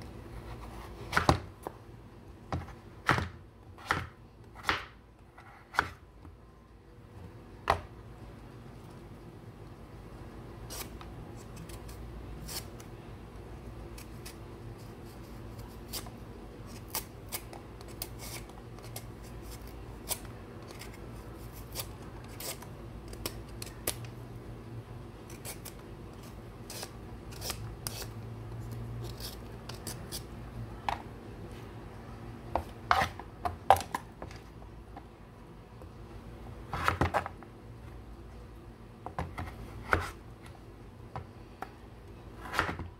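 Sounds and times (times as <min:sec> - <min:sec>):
peeler scraping squash skin: 0:10.7 - 0:12.9, 0:13.9 - 0:24.0, 0:25.3 - 0:30.3.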